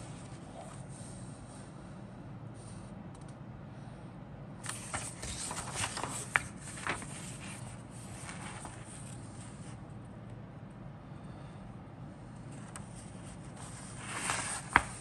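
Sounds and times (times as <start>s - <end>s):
paper rustling and crinkling: 4.6s - 9.8s, 12.5s - 15.0s.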